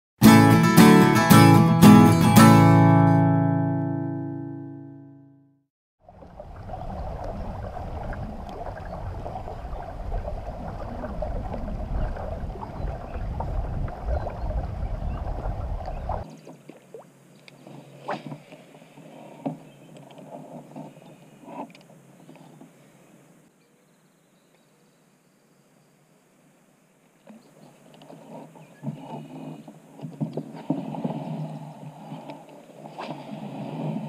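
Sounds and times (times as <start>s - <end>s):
rushing wind and water: 6.0s - 21.6s, 28.0s - 34.0s.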